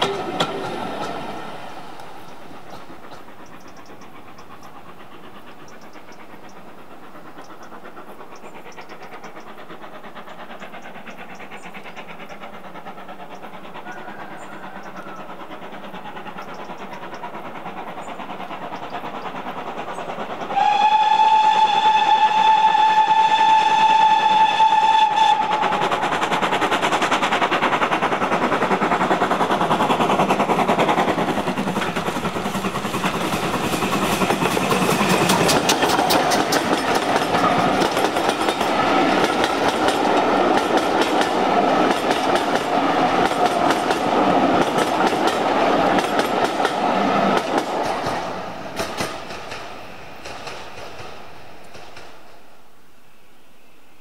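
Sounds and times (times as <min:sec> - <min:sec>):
train clattering past: 0:00.0 - 0:52.8
steam locomotive whistle blast: 0:20.5 - 0:26.0.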